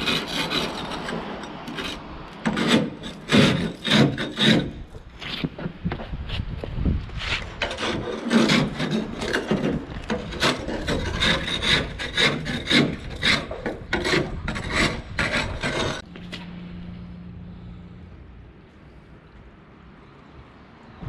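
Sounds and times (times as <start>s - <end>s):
hand scraper rasping on hull: 0.0s - 5.0s, 7.2s - 16.1s.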